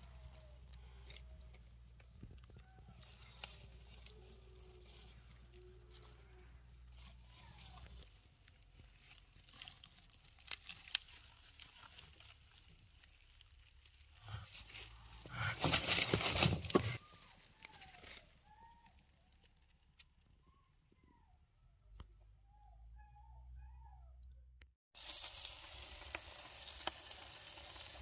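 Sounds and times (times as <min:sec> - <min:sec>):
straw rustling and crackling: 0:00.0 - 0:20.4.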